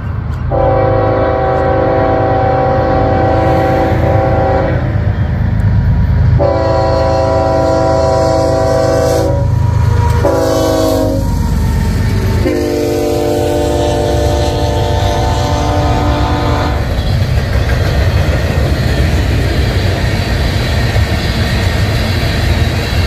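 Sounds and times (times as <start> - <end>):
freight cars rolling rumble: 0.0 - 23.0
locomotive horn blasts: 0.5 - 5.0, 6.4 - 11.3, 12.4 - 17.0.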